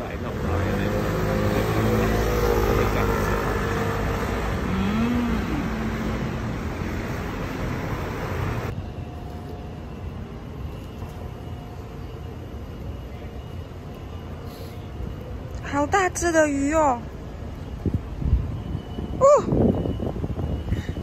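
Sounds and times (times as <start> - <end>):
scooters and truck passing: 0.0 - 8.8
outdoor background: 0.0 - 21.0.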